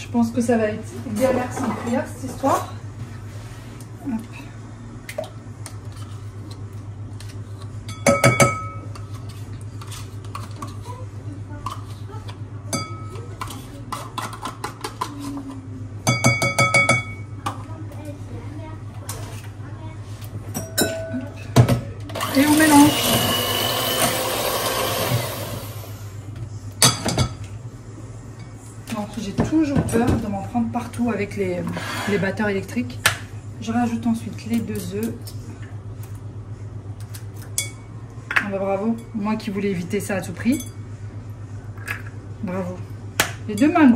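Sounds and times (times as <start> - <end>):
electric hand mixer whisking: 22.2 - 26.0
low steady hum: 25.2 - 43.9.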